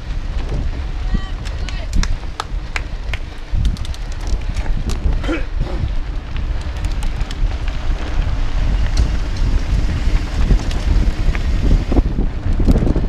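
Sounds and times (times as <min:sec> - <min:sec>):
tyres rumbling on dirt: 0:00.0 - 0:13.0
wind buffeting microphone: 0:00.0 - 0:13.0
bike rattling clicks: 0:01.4 - 0:13.0.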